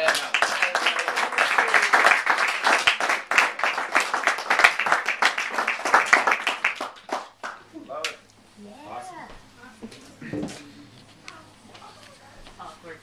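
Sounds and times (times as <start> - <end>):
small audience clapping: 0.0 - 8.2.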